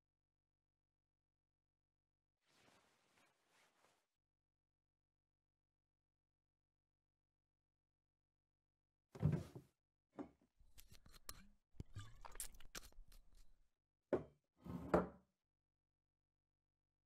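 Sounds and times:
drawer shutting with thuds: 9.2s - 9.6s
wooden drawer sliding open: 9.2s - 9.6s.

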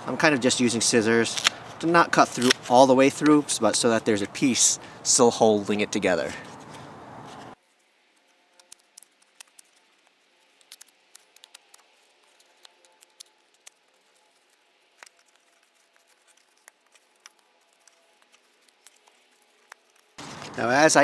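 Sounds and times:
scissors and foam rustling: 1.2s - 3.5s, 6.2s - 20.7s
faint irregular clicks: 8.6s - 20.2s.

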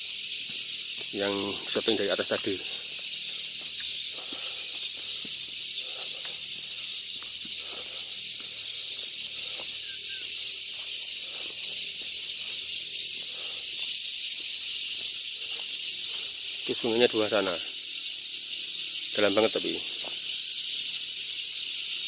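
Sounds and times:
insects hissing chorus: 0.0s - 22.0s
footsteps on dirt path: 0.2s - 17.0s.

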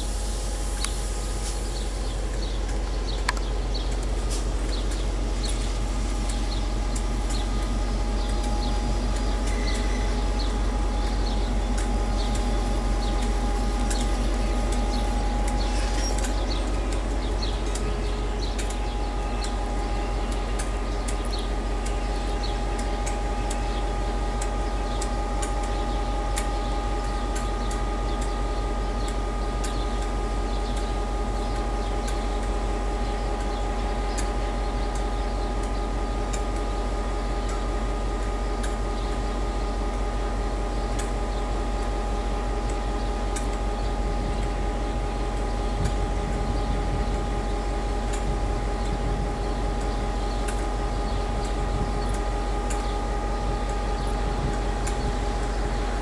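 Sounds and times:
held whine: 0.0s - 56.0s
track machine droning: 0.0s - 56.0s
small irregular clicks: 2.3s - 9.9s, 11.2s - 23.8s, 24.4s - 28.4s, 33.3s - 36.7s, 40.9s - 41.2s, 42.6s - 43.6s, 51.4s - 53.0s.

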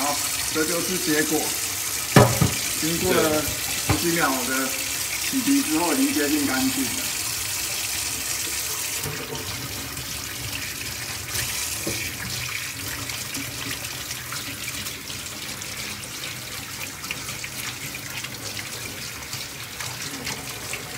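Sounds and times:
tap running into metal sink: 2.1s - 4.6s, 8.7s - 9.8s, 11.4s - 12.4s.

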